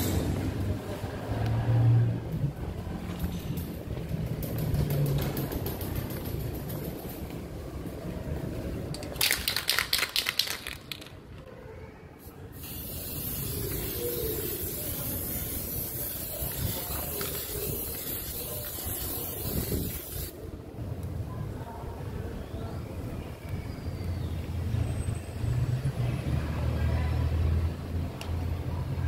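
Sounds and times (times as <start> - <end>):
spray can rattling: 3.6 - 7.3, 8.9 - 11.3, 12.6 - 20.4
spray hiss: 12.6 - 20.4.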